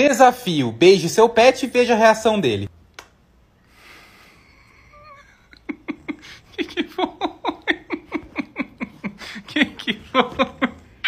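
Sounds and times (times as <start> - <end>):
woman laughing hard: 4.6 - 11.0.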